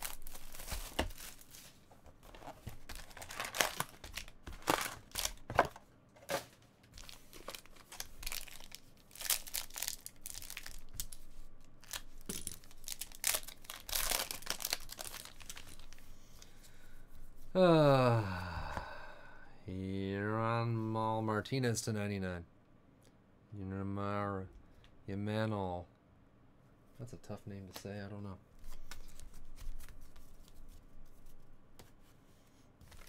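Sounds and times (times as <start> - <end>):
foil wrapper crinkling and tearing: 0.0 - 1.7, 2.3 - 5.6, 6.9 - 11.2, 11.8 - 16.0.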